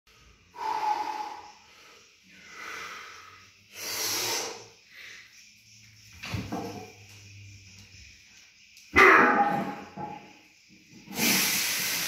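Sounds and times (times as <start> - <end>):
man breathing forcefully: 0.1 - 5.4.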